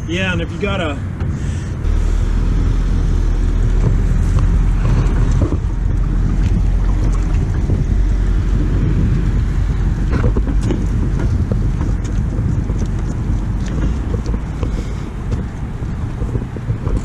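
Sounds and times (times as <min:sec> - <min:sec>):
wind rumbling on microphone: 0:00.0 - 0:17.0
trailer knocks and rattles: 0:03.6 - 0:17.0.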